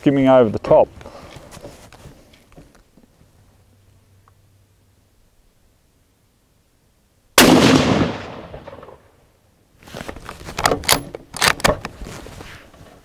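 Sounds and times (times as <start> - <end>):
rifle shot: 7.4 - 9.2
rifle bolt metallic clicks: 10.6 - 11.9.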